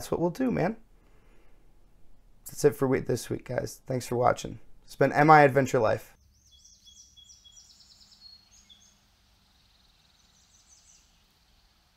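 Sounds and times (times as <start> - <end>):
faint bird trill: 6.2 - 11.7
birds chirping: 6.2 - 11.9.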